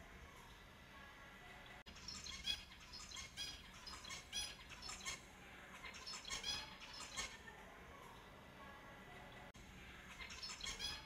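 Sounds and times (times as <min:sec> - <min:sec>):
finches chirping: 0:01.5 - 0:07.7, 0:09.1 - 0:11.0.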